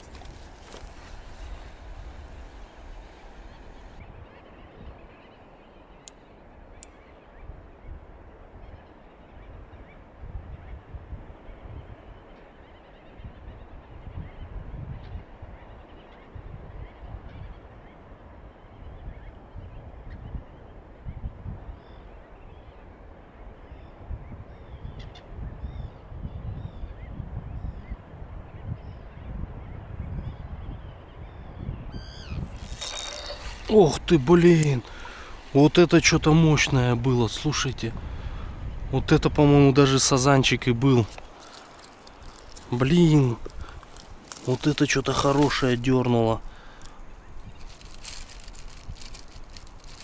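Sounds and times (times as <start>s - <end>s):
wind rumbling on microphone: 0.0s - 12.4s, 13.0s - 50.0s
distant bird calls: 0.0s - 50.0s
short bird calls: 31.4s - 36.2s.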